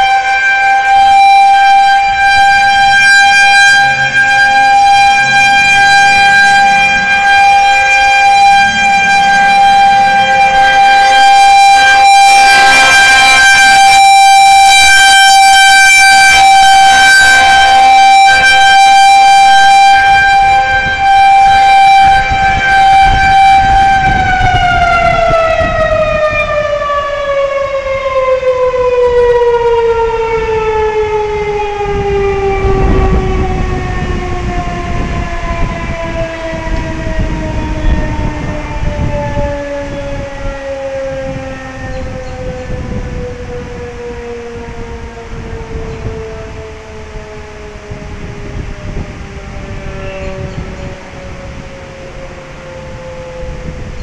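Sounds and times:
warning siren wailing: 0.0 - 54.0.

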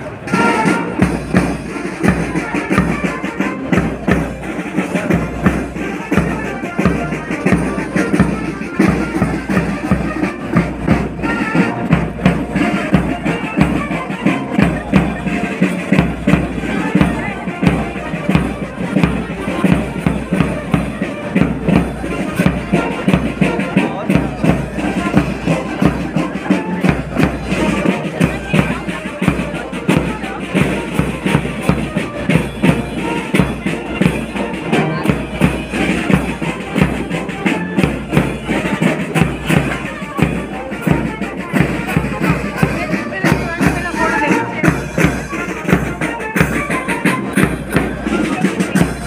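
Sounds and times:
crowd chatter: 0.0 - 49.0
marching band playing: 0.0 - 49.0.

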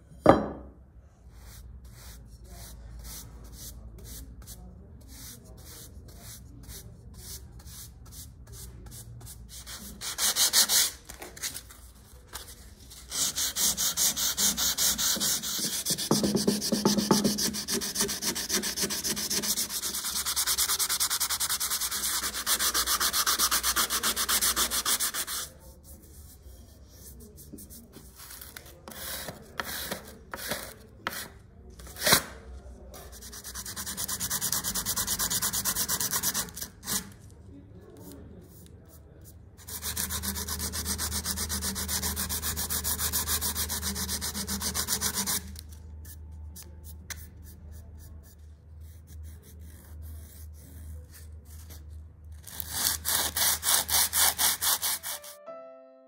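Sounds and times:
sanding on steel: 13.1 - 25.6, 39.7 - 45.5, 52.8 - 55.4.

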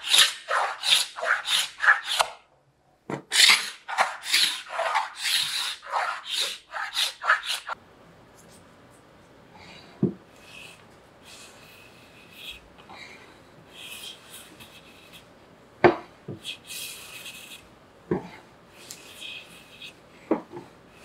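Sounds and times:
hand plane cutting wood: 0.0 - 2.4, 3.3 - 7.8.

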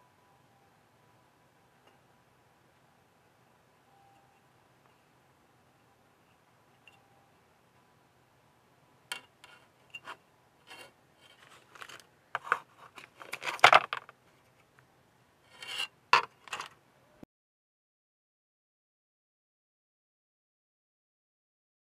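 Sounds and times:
plastic clacks and scrapes: 9.1 - 14.7.

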